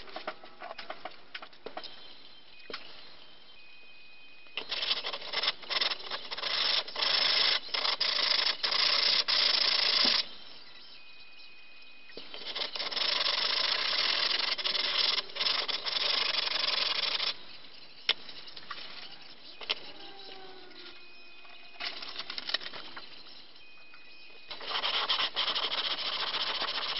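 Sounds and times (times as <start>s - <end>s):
metal plate scrubbing on sandpaper: 24.5s - 26.9s.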